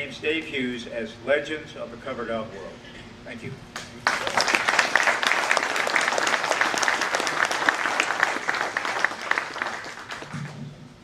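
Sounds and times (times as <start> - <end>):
audience applauding: 4.0 - 10.6.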